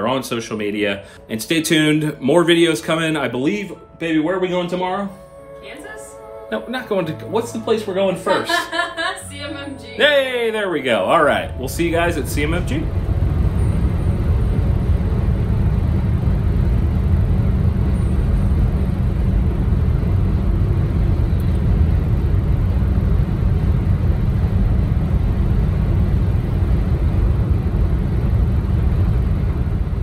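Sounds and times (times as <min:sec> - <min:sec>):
road rumble inside car: 0:12.0 - 0:30.0.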